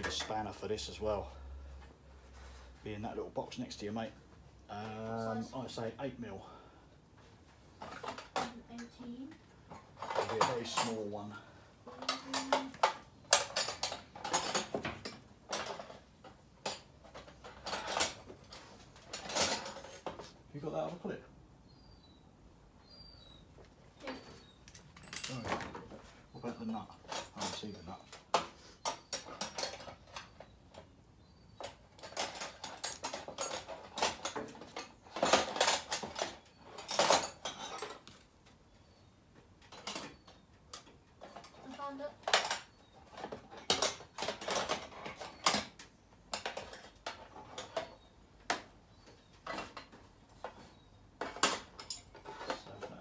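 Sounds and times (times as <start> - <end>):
small metal tools clinking: 9.6 - 20.3, 24.0 - 30.9, 31.5 - 38.2, 39.6 - 53.0.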